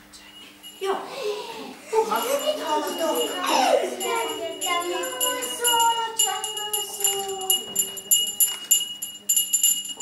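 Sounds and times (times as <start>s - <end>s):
voices singing: 1.7s - 8.6s
jingle bells shaken: 1.9s - 10.0s.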